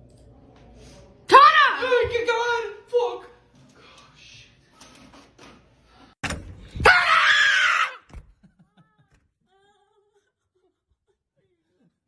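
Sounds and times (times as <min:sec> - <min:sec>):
woman screaming: 0:06.8 - 0:08.0.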